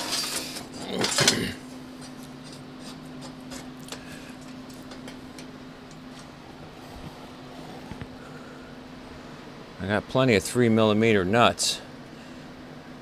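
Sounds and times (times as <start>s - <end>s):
steel plates clattering and scraping: 0.0s - 3.7s
fan hum: 0.0s - 13.0s.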